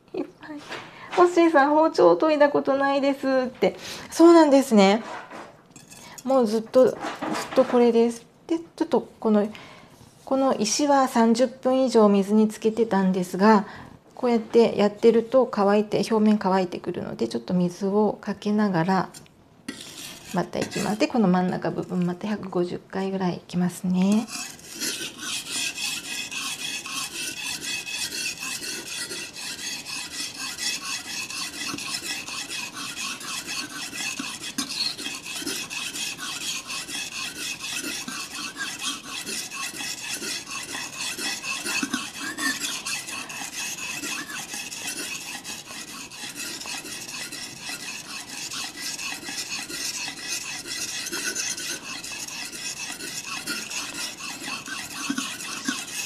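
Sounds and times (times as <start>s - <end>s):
knife rasping on a whetstone: 19.1s - 21.6s, 24.1s - 56.0s.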